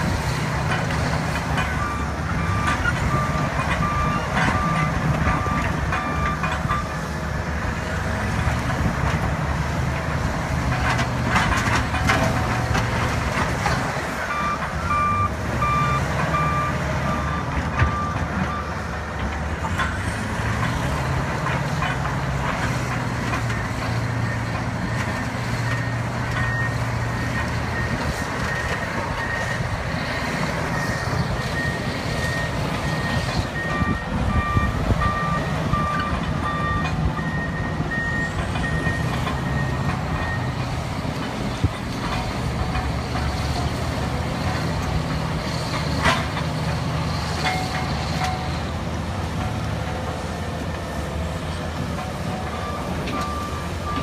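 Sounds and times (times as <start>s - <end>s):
steel tracks clanking on rock: 0.0s - 14.9s, 16.1s - 54.0s
bulldozer diesel engines under load: 0.0s - 54.0s
reversing alarms beeping: 1.2s - 7.0s, 14.2s - 18.9s, 23.5s - 29.8s, 30.6s - 40.7s, 52.0s - 54.0s.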